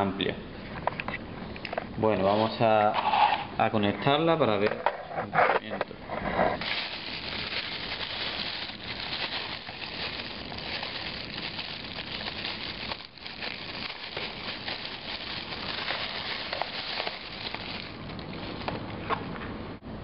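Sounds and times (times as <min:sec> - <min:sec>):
plastic bags crinkling: 0:06.6 - 0:18.9.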